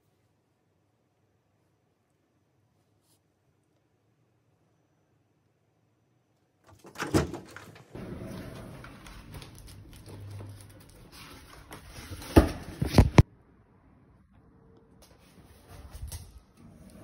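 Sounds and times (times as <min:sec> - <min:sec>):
cardboard rustling and scuffing: 0:08.0 - 0:13.2.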